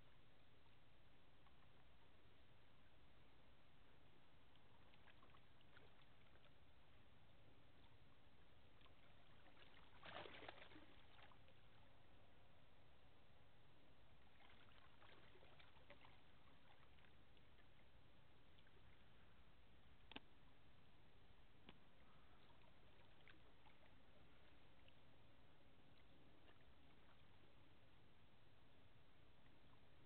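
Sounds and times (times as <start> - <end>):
faint low rumble: 0.0 - 30.0
faint clicks: 20.0 - 20.3.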